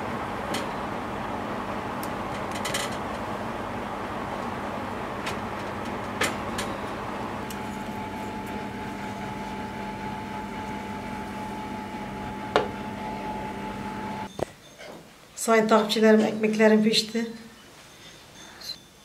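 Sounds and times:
oven fan humming: 0.0s - 14.3s.

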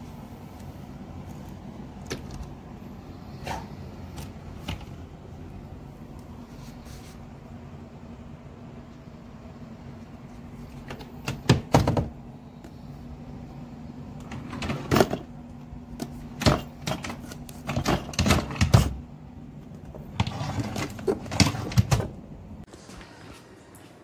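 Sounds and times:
steady low hum: 0.0s - 24.0s
cabinet doors and drawers knocking: 10.9s - 12.2s, 16.3s - 19.0s, 20.1s - 22.2s.

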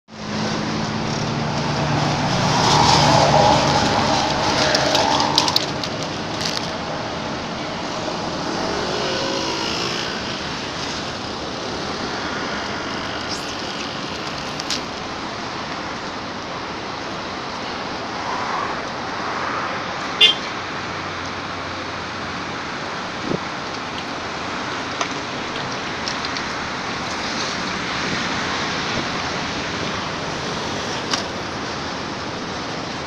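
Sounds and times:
vehicle engine: 0.1s - 33.0s.

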